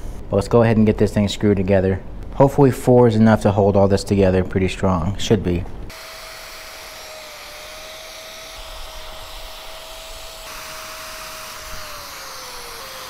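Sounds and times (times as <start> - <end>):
power drill whining through metal: 5.9 - 13.0.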